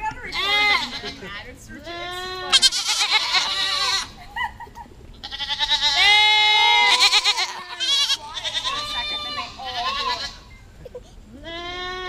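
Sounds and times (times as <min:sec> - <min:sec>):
goats bleating: 0:00.2 - 0:04.3, 0:05.2 - 0:10.6, 0:11.3 - 0:12.0.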